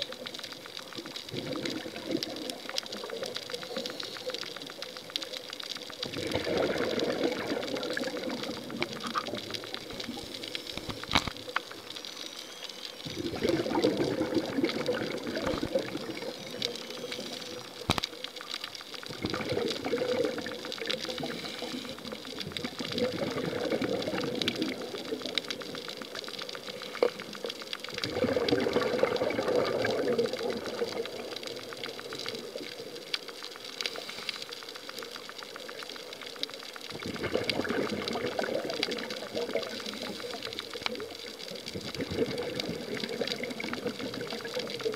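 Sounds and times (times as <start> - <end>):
underwater bubbles rushing: 0.0 - 44.9
sharp clicks: 8.2 - 13.0.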